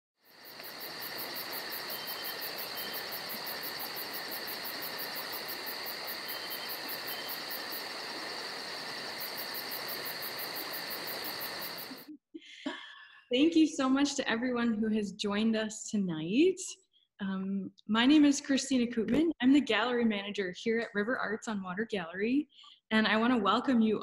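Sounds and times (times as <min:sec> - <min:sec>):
crickets chirping: 0:00.2 - 0:12.1
rapid high insect pulsing: 0:00.2 - 0:12.1.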